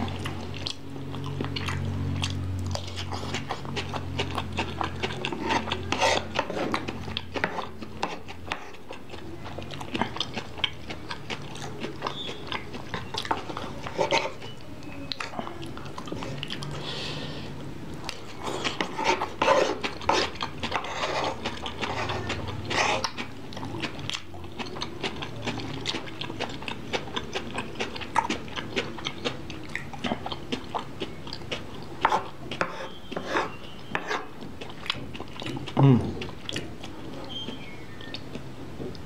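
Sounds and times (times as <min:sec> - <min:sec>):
slurping: 0:00.0 - 0:17.5, 0:18.1 - 0:38.2
chewing: 0:00.0 - 0:39.0
metal spoon scraping wooden plate: 0:05.3 - 0:06.7.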